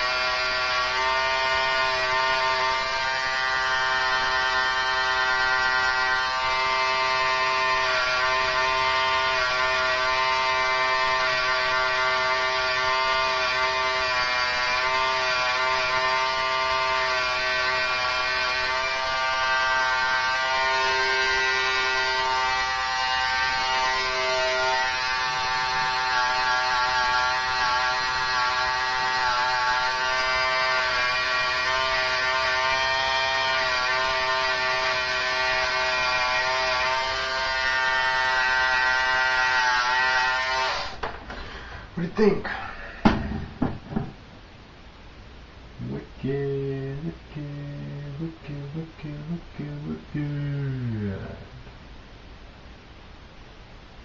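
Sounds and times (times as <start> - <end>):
electric hair clippers buzzing: 0.0 - 41.1.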